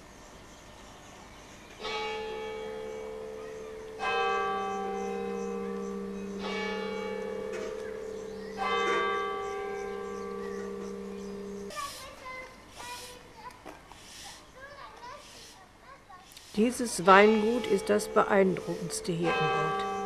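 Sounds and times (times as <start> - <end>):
church bell tolling: 1.8 - 11.7, 16.9 - 20.0.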